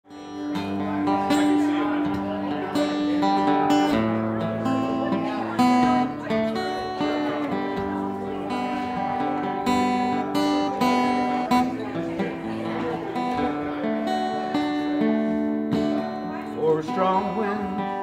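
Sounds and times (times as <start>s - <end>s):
acoustic guitar strumming chords: 0.1s - 18.0s.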